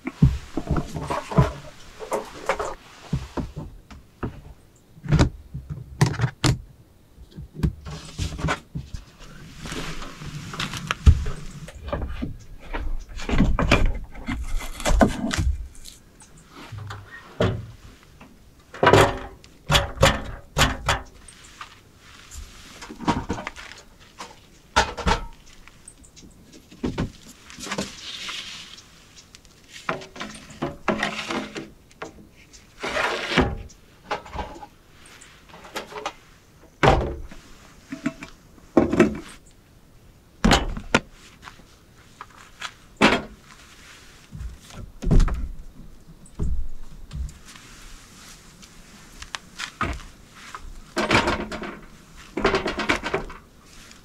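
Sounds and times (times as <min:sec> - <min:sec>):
board scraping: 0:07.9 - 0:17.8, 0:29.7 - 0:31.8, 0:32.8 - 0:33.7.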